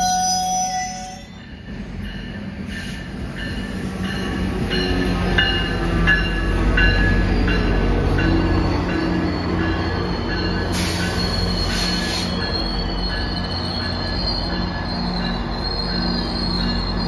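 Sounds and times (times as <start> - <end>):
train wheels squealing: 0.0 - 17.0
wheels rumbling on rails: 0.0 - 17.0.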